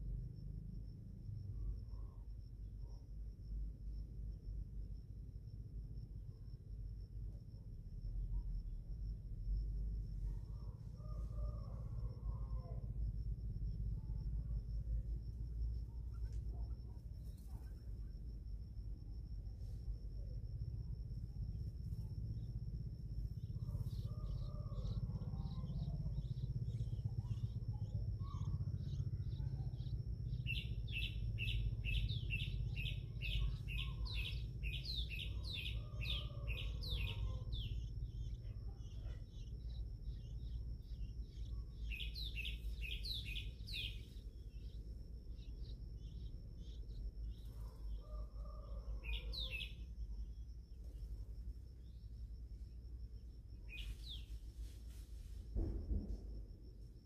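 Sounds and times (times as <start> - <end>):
low steady rumble: 0.0 - 35.8, 36.9 - 48.4
nestlings begging cheeps: 23.6 - 49.8.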